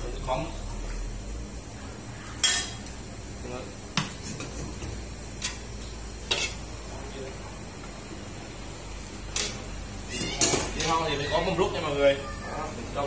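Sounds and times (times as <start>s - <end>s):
metal ladle clinking on pots: 2.4s - 2.8s.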